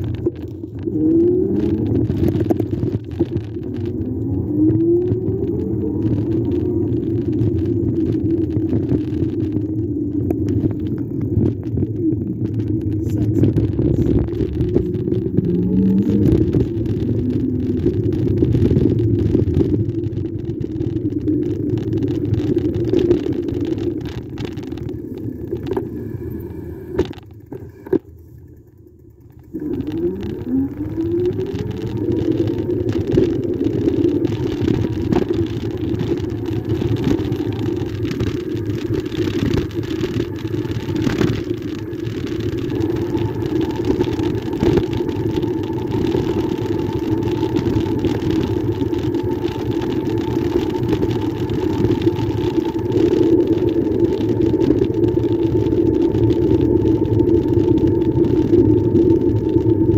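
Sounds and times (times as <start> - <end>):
wind on microphone: 0.0 - 28.0, 29.6 - 59.9
tyre noise: 0.0 - 28.2
short rising whine: 0.0 - 59.9.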